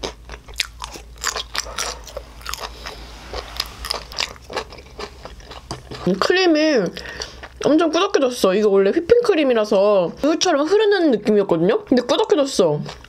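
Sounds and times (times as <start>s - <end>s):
person chewing: 0.0s - 7.7s.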